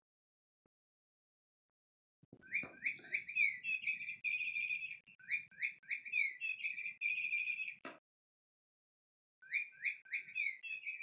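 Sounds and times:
electronic bird chirps: 2.4 - 7.8, 9.4 - 11.0.

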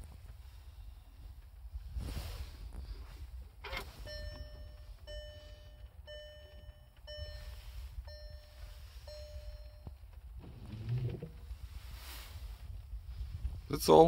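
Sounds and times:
low cabin rumble: 0.0 - 14.0
car warning chime beeping: 3.6 - 11.4.

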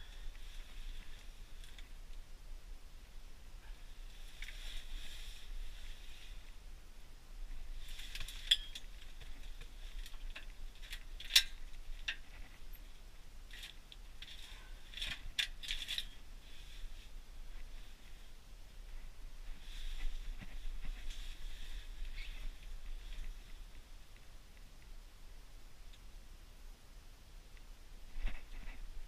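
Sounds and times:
fishing gear clicking and rustling: 13.5 - 16.2.

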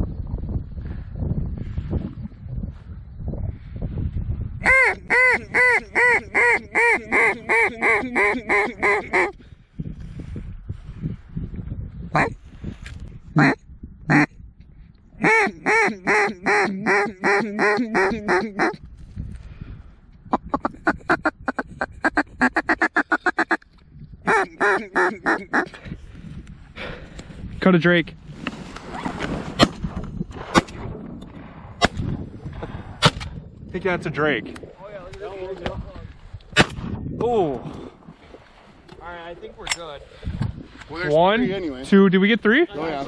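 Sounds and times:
duck call quacks: 4.6 - 9.3, 12.2 - 12.4, 13.4 - 14.3, 15.2 - 18.8, 20.3 - 23.6, 24.3 - 25.7.

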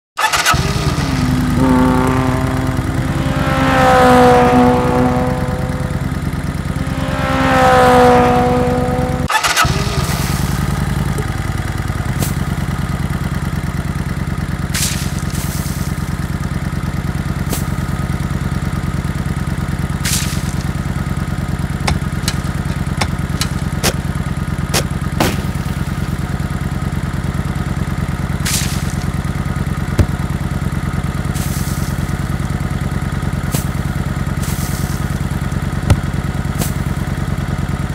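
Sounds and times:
pitched whine: 0.2 - 13.3
engine running: 0.2 - 37.9.

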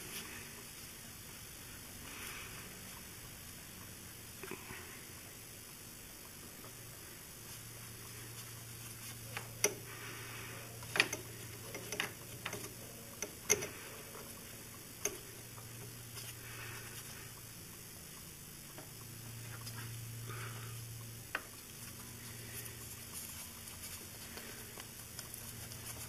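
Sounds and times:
faint low hum: 0.0 - 26.0
wrench clicks and knocks: 10.9 - 13.8.

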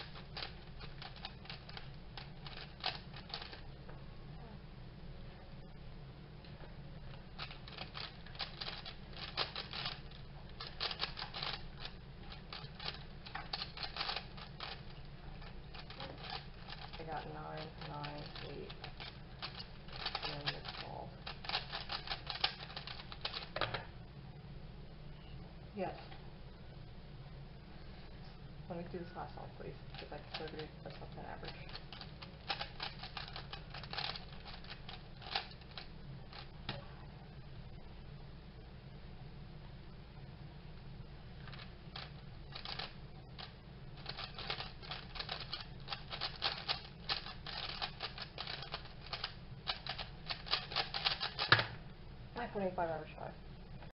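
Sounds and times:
plastic clacking of puzzle cube: 0.0 - 3.6, 7.4 - 10.0, 10.6 - 23.8, 31.4 - 36.5, 41.5 - 51.8.

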